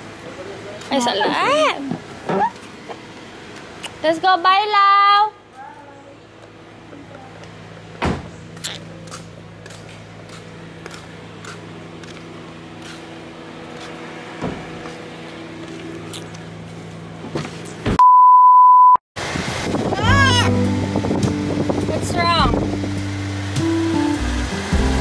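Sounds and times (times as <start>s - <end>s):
low vehicle hum: 0.0s - 18.0s, 19.2s - 25.0s.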